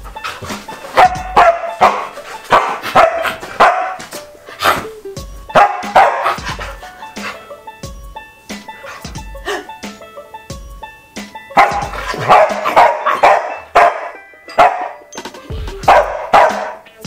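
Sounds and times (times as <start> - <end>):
dog barking: 0.9 - 4.8, 5.5 - 7.4, 11.6 - 15.0, 15.8 - 16.8.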